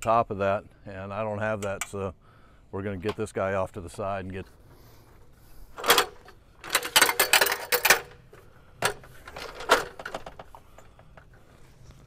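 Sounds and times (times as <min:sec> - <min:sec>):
ladder clanking and rattling: 0:05.7 - 0:11.3.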